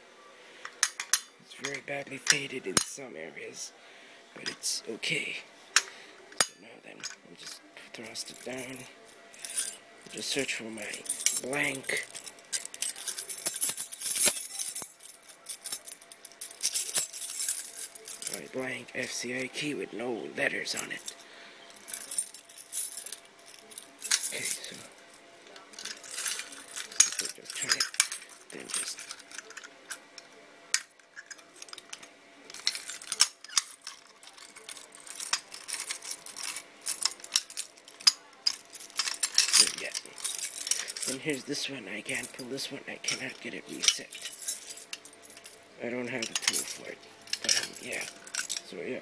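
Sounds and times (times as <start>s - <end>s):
keys jangling: 8.0s - 18.4s, 21.8s - 24.8s, 25.8s - 30.1s, 30.8s - 42.4s, 43.1s - 45.6s, 46.2s - 48.6s.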